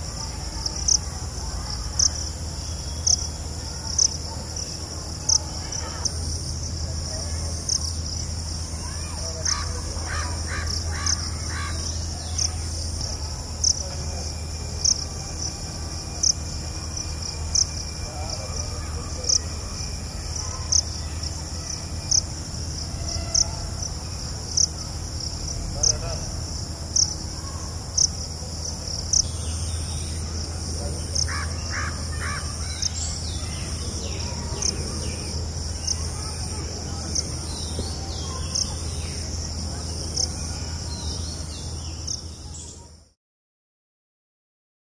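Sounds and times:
insect chirp: 0:00.0 - 0:43.0
insects trilling: 0:00.0 - 0:43.0
bird harsh calls: 0:08.8 - 0:13.8, 0:31.0 - 0:39.3.

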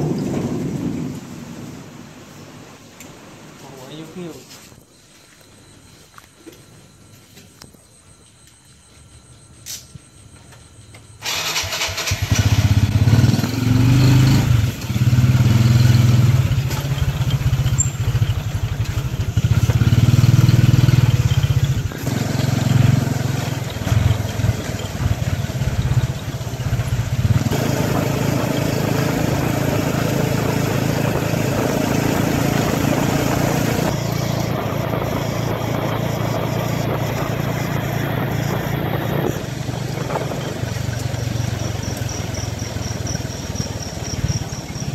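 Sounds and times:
motorcycle engine revving: 0:11.2 - 0:44.9
wind noise: 0:24.4 - 0:41.0.

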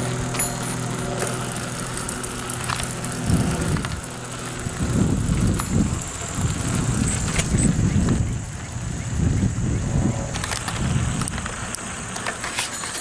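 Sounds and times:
steady low hum: 0:00.0 - 0:12.9
wind buffeting microphone: 0:02.9 - 0:11.8.

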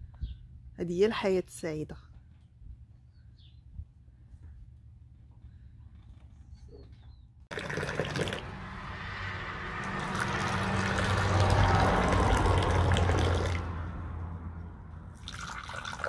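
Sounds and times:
tea pouring and splashing into glasses: 0:07.5 - 0:08.5, 0:09.9 - 0:13.6, 0:15.2 - 0:16.0.

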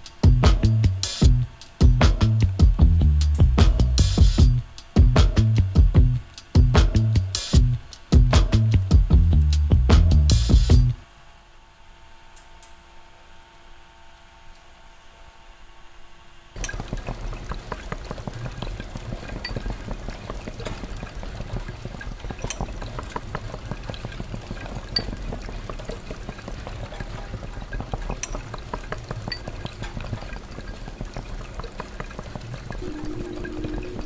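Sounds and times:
faint steady hum: 0:00.0 - 0:34.0
rain patter and drips: 0:16.6 - 0:34.0.

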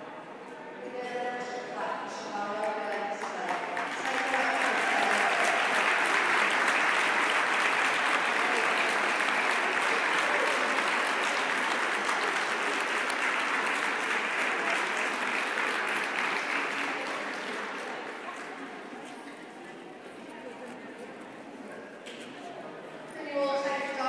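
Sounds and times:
audience applauding: 0:03.4 - 0:18.7.

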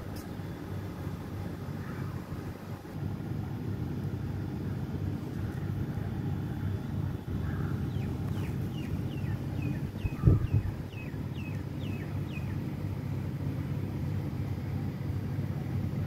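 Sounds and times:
steady low rumble: 0:00.0 - 0:16.0
bird chirping: 0:07.8 - 0:12.6.

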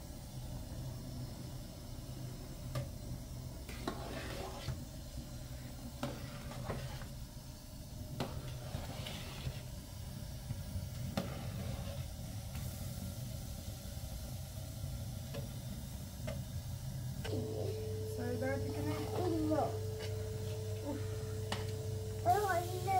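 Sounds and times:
gas burner hissing: 0:00.0 - 0:22.9
spoon stirring liquid: 0:03.7 - 0:04.8.

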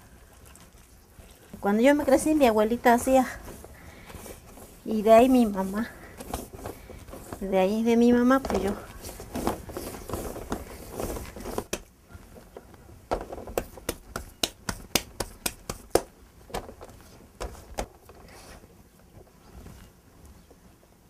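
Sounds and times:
hands kneading wet clay: 0:00.0 - 0:12.6
clay slapped between palms: 0:13.6 - 0:16.1.

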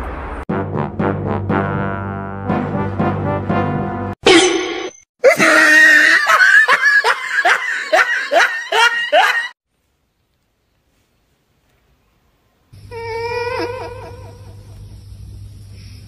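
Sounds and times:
rhythmic laughter: 0:05.5 - 0:09.6.

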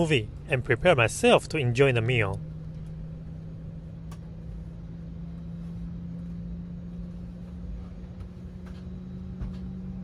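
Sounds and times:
aircraft cabin engine rumble: 0:00.0 - 0:10.0
steady low hum: 0:00.0 - 0:10.0.

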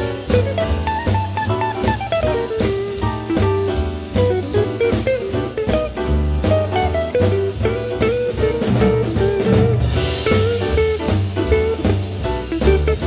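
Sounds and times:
jazz guitar and drums music: 0:00.0 - 0:13.0.

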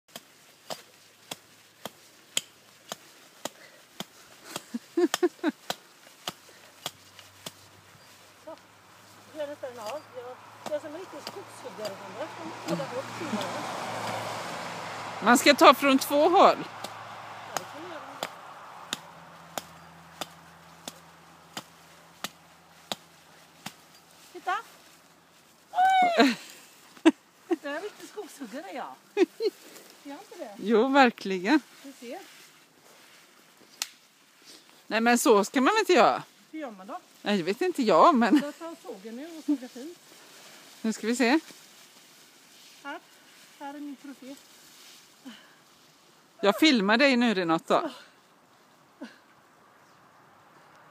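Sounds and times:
hatchet chopping tree trunk: 0:00.1 - 0:07.6, 0:16.7 - 0:23.8.

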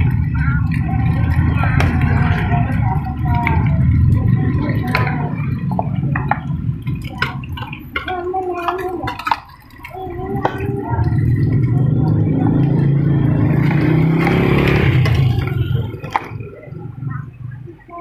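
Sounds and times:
motorcycle engine passing by: 0:11.1 - 0:17.7.

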